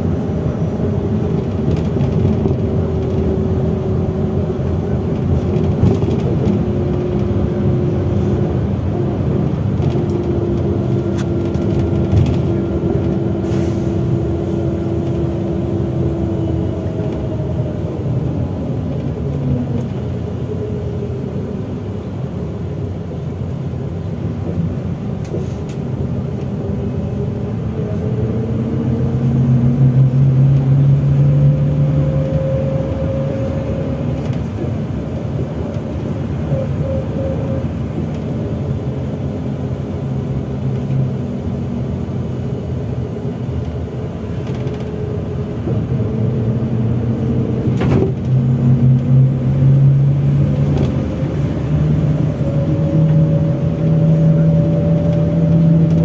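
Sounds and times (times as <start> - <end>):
bus engine and road rumble: 0.0 - 56.0
whining tone: 26.7 - 39.2.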